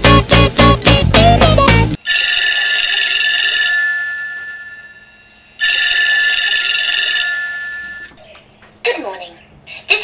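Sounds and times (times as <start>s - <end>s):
alarm clock telephone bell ringing: 2.0s - 8.2s.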